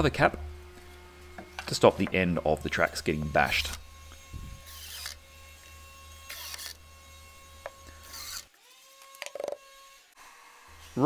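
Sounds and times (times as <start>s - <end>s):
impact driver driving screws: 4.6s - 5.2s, 6.2s - 6.8s, 7.6s - 9.6s.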